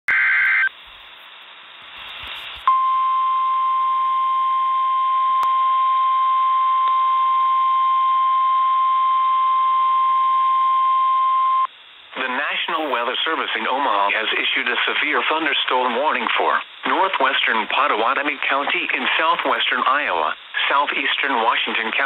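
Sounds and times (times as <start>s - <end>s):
radio hiss: 0.1s - 2.7s, 11.6s - 22.0s
steady single-pitch alarm tone: 2.7s - 11.7s.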